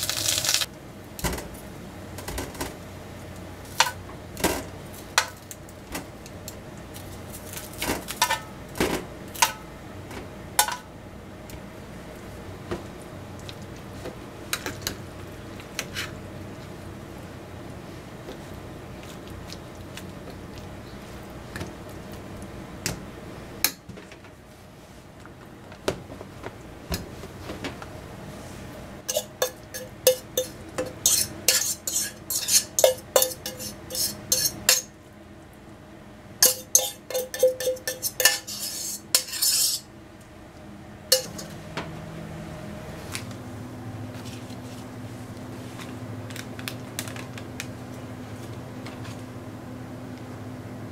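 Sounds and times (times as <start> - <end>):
utensils scraping bowls: 29.1 - 34.9, 36.4 - 39.9, 41.2 - 41.6.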